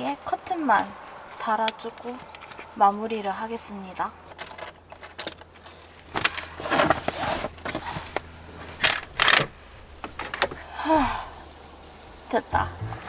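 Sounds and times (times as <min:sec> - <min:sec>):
curtain fabric rustling: 0:05.6 - 0:12.4
brief falling tone: 0:12.6 - 0:13.0.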